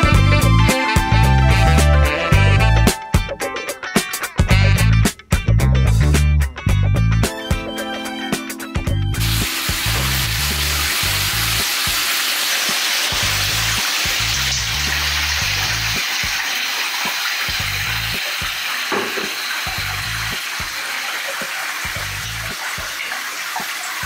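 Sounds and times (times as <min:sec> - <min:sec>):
background music with bass line: 0:00.0 - 0:11.7, 0:13.1 - 0:16.0, 0:21.9 - 0:22.6
water running into bathtub: 0:09.2 - 0:24.0.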